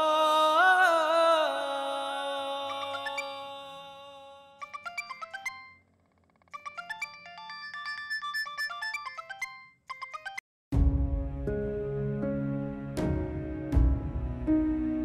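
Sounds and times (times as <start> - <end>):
mobile phone ringtone: 2.7 - 3.6, 4.6 - 10.4
background score music: 10.8 - 15.0.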